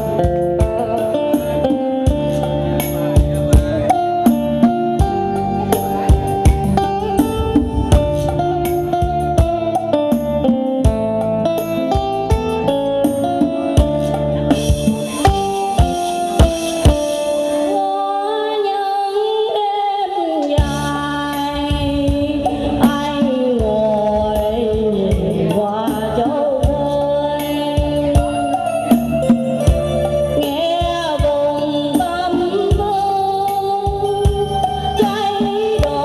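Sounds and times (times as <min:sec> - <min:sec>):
programmed drum beat: 0:02.8 - 0:11.4, 0:13.6 - 0:17.7
woman singing into microphone: 0:03.6 - 0:11.6, 0:14.5 - 0:36.0.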